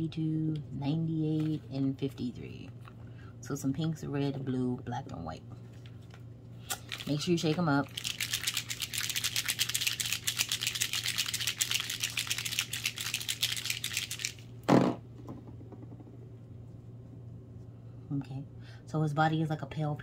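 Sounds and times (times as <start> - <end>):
paint bottles rattling when shaken: 6.8 - 14.4
thump: 14.7 - 15.9.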